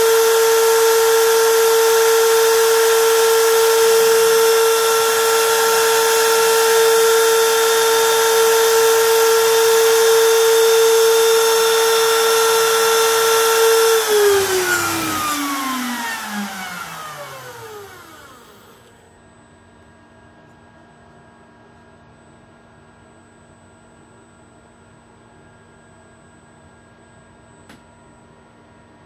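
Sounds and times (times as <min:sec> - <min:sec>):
milling spindle whine: 0:00.0 - 0:19.0.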